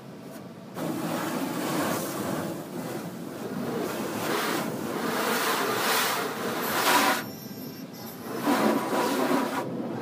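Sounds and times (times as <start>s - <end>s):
water spray on car: 0.7s - 10.0s.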